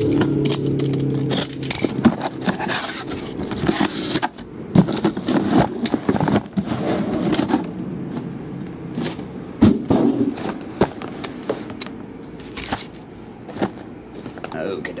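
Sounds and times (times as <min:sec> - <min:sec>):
cardboard boxes scraping and rustling: 0:01.2 - 0:08.3, 0:08.9 - 0:11.8, 0:12.4 - 0:14.6
box thumping down: 0:09.6 - 0:11.2.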